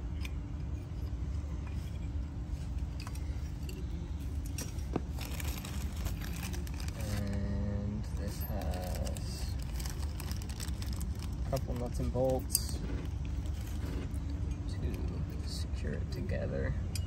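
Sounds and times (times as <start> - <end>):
metal parts clicking and knocking: 0.0 - 7.3
steady low rumble: 0.0 - 17.0
plastic bag crinkling: 5.1 - 7.4, 8.5 - 12.4.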